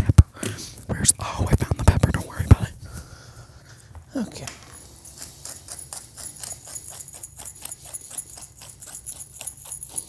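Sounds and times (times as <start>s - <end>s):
potato masher strokes in a pot: 5.0s - 10.0s.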